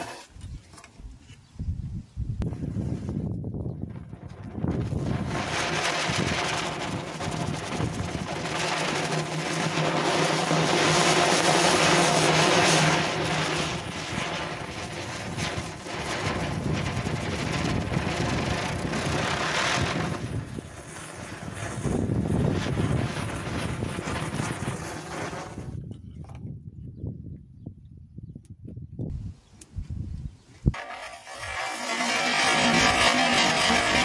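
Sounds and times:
fireworks spraying sparks hissing: 4.2s - 25.8s, 30.7s - 34.0s
matchsticks flaring: 30.8s - 34.0s.

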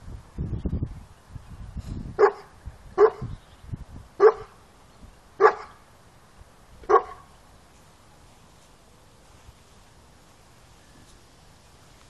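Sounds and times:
dog barking: 2.2s - 3.3s, 4.2s - 4.6s, 5.4s - 5.8s, 6.9s - 7.3s.

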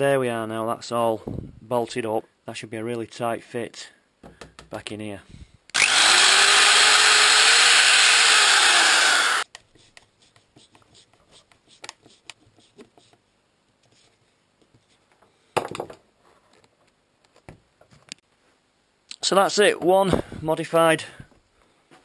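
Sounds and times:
power drill boring plastic: 5.7s - 9.4s.

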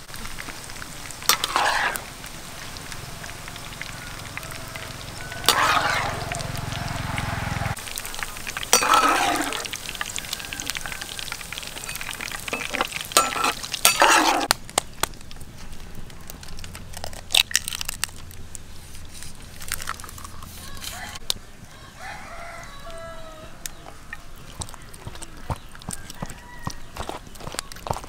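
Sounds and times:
hot oil sizzling in a wok: 0.0s - 15.5s
metal ladle clinking in wok: 8.7s - 9.6s, 11.8s - 14.5s.

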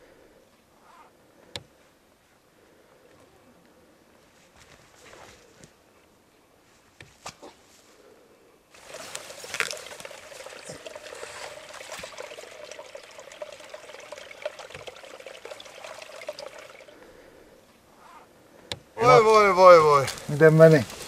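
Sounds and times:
water trickling: 8.7s - 17.3s.

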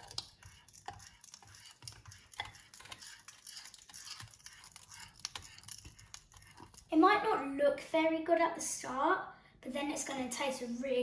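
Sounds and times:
fork scraping and clicking in bowl: 0.0s - 6.9s.

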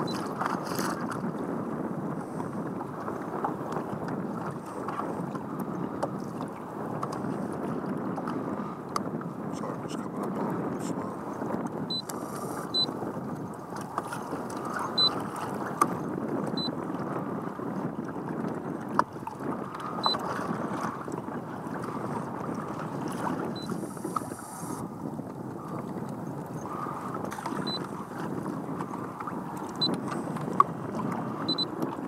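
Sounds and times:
waves lapping against boat hull: 0.0s - 32.0s
wind on microphone: 0.0s - 32.0s.

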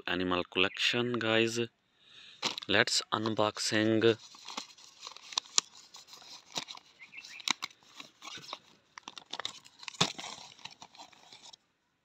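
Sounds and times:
plastic bag crinkling: 2.4s - 11.6s.

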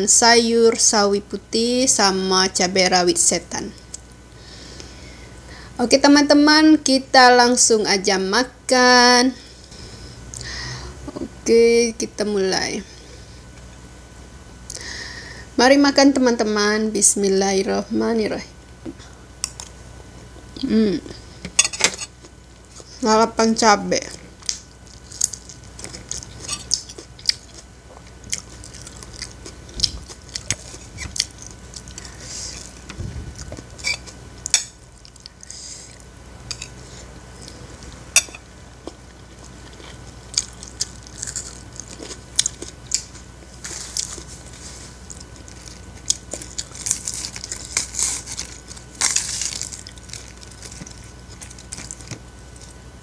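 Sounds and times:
crisp bites and wet chewing: 24.4s - 36.8s, 38.8s - 52.8s
crunching: 37.4s - 52.8s.

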